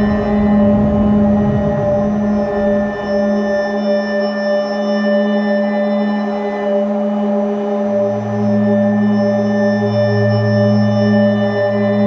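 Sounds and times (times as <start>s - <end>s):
faint hum: 0.0s - 5.6s
ambient drone music: 0.0s - 12.0s.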